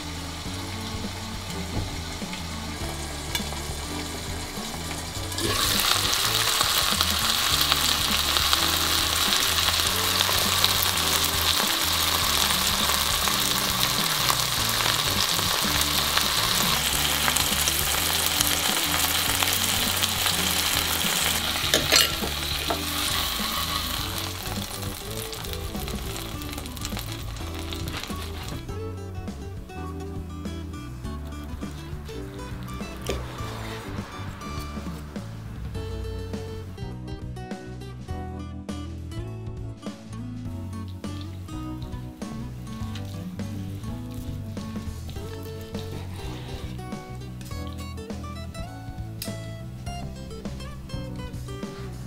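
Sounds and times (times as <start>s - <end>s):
chicken sizzling in oil: 0.0s - 28.7s, 30.6s - 36.0s, 40.9s - 48.2s.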